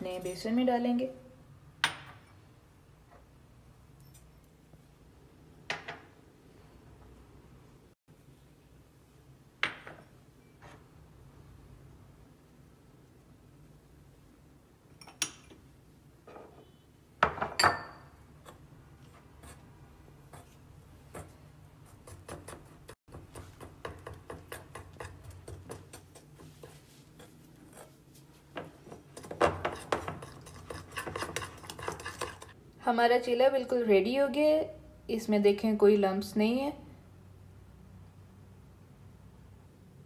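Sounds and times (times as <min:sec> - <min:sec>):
batter being stirred: 0:18.4 - 0:32.6.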